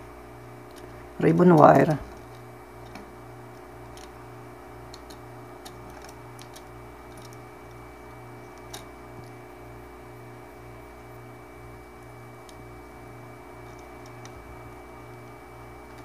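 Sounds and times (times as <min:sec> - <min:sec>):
low pulsing hum: 0:00.0 - 0:16.0
ribbon cable clicking into connector: 0:04.9 - 0:07.8.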